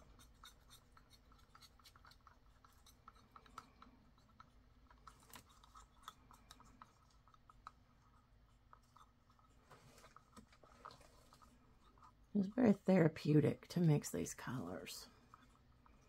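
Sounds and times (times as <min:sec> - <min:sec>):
stir stick scraping in cup: 0:00.0 - 0:12.6.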